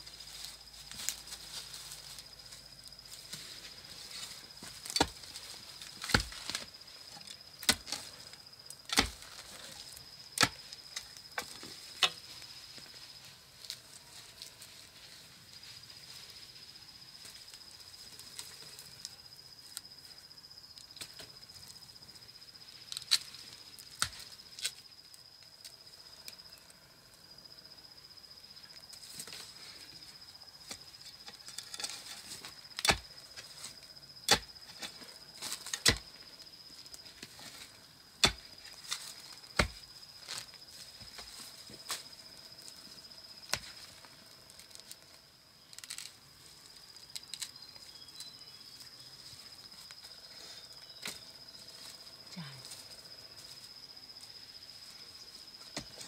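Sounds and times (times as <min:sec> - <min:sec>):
high insect trill: 0:00.0 - 0:56.0
hoe chopping into dry soil: 0:04.6 - 0:06.7, 0:07.6 - 0:08.1, 0:08.8 - 0:09.5, 0:31.7 - 0:33.1, 0:34.2 - 0:36.1, 0:38.2 - 0:42.1, 0:43.5 - 0:43.8.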